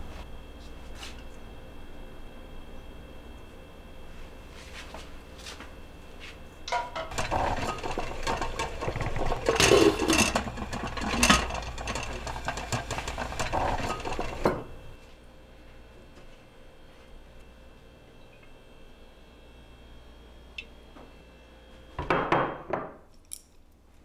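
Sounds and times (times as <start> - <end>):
kitchenware knocks and clinks: 6.7 - 14.6.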